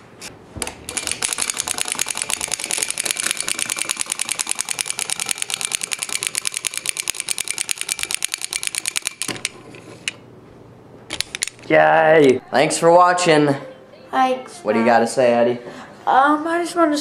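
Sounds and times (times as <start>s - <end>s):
wind-up toy clattering on wood: 0.9s - 9.3s.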